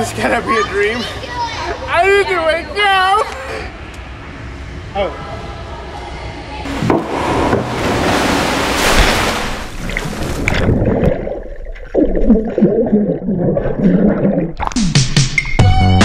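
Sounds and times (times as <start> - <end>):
big splash into water: 6.7 - 11.4
splash breaking the surface: 6.7 - 11.4
muffled underwater bubbling: 9.8 - 14.9.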